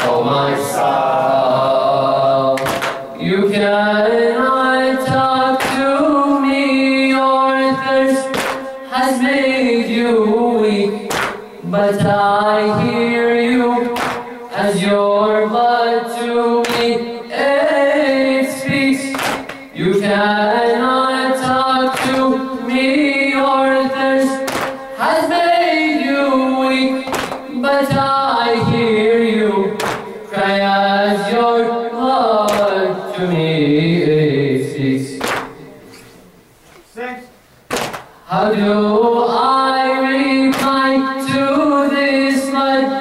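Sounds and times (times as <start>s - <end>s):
young man singing lament: 0.0s - 35.7s, 38.2s - 43.0s
sharp hand slaps: 2.6s - 3.1s, 5.6s - 5.9s, 8.3s - 8.8s, 11.1s - 11.4s, 14.0s - 14.3s, 16.6s - 17.0s, 19.1s - 19.7s, 21.9s - 22.3s, 24.5s - 24.8s, 27.1s - 27.4s, 29.8s - 30.1s, 32.5s - 32.8s, 35.2s - 35.6s, 37.7s - 38.1s, 40.5s - 40.8s.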